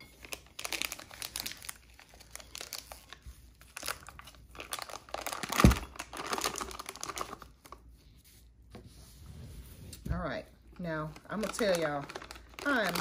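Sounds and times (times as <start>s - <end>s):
plastic piping bag crinkling: 0.0s - 7.9s, 10.7s - 13.0s.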